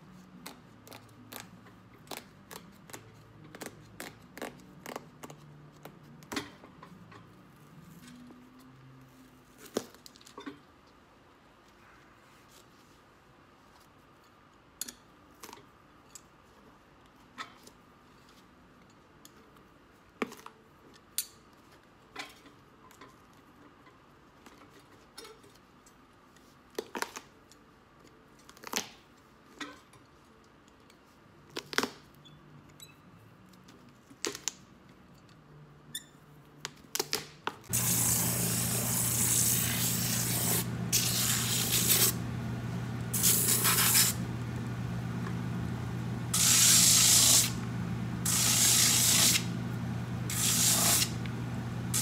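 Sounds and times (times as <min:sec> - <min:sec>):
machine humming: 0:37.7 - 0:52.0.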